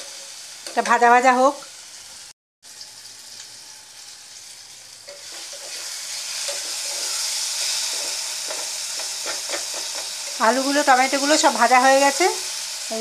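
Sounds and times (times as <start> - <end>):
vegetables sizzling in oil: 0.0 - 13.0
spatula scraping pan: 5.1 - 11.4.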